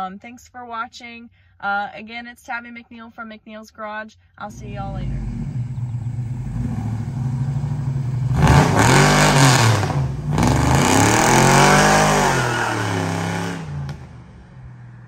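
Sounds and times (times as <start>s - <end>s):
car engine revving: 4.5s - 15.0s.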